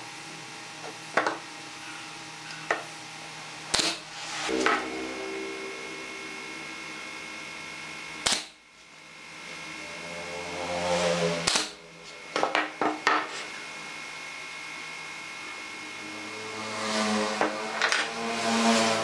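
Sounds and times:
nail gun firing: 0:03.7 - 0:04.0, 0:08.2 - 0:08.6, 0:11.4 - 0:11.8.

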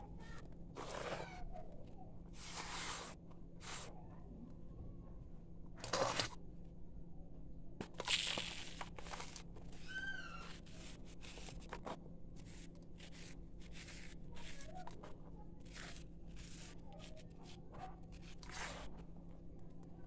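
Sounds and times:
cast crunching by hand: 0:07.8 - 0:09.5
falling grit: 0:12.5 - 0:17.2.

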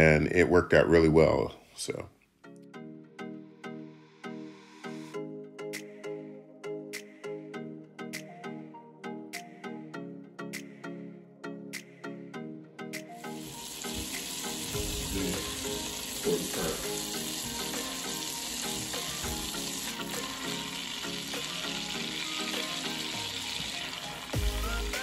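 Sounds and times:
soft background music: 0:00.0 - 0:25.0
fat sizzling and bubbling: 0:13.2 - 0:25.0.

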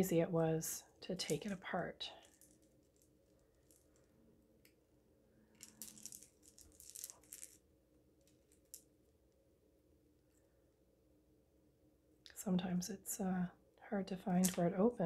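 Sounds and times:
beads and chain links clicking: 0:05.5 - 0:07.6.

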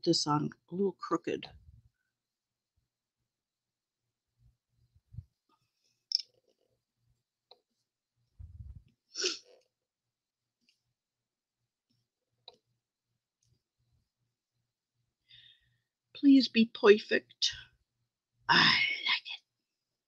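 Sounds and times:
low rumble of hands pressing: 0:08.3 - 0:08.9.

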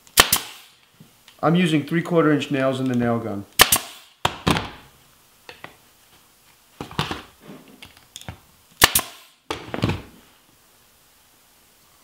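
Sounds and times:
nail gun shots: 0:00.1 - 0:00.8, 0:03.6 - 0:04.8, 0:08.8 - 0:09.6.

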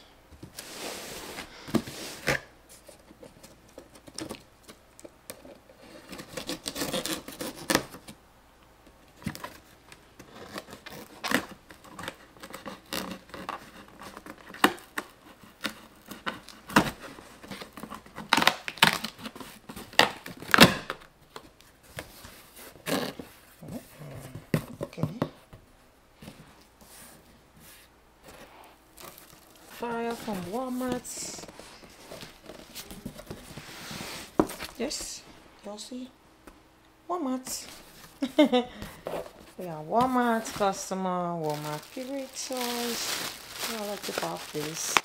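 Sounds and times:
tape and cardboard tearing: 0:03.9 - 0:08.2, 0:10.2 - 0:21.0
packaging rustling: 0:28.3 - 0:34.8, 0:37.7 - 0:45.0.

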